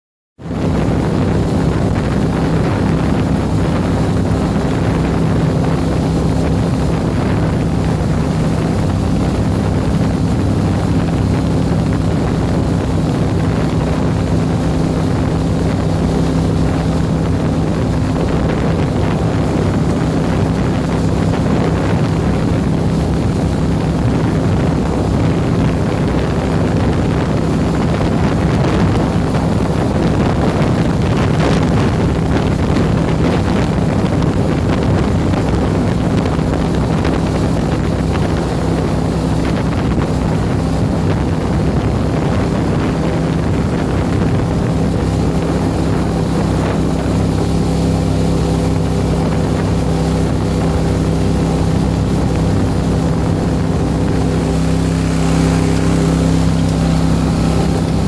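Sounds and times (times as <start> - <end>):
boat engine running: 0.4 - 58.0
wind buffeting microphone: 0.4 - 58.0.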